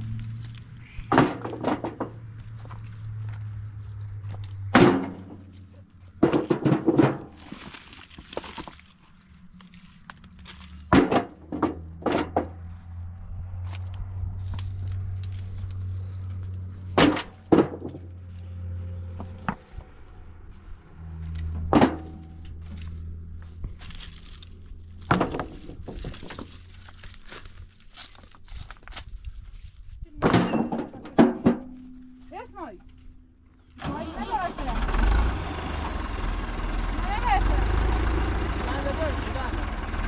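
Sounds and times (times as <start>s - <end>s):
low steady hum: 0.0s - 35.0s
dull thuds and knocks: 1.1s - 2.8s, 4.6s - 5.4s, 6.2s - 7.5s, 25.1s - 26.5s.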